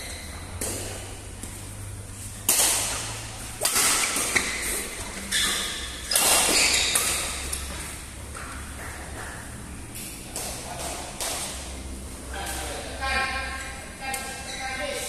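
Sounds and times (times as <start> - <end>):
rackets hitting shuttlecock: 0.1 - 1.6, 2.3 - 11.8.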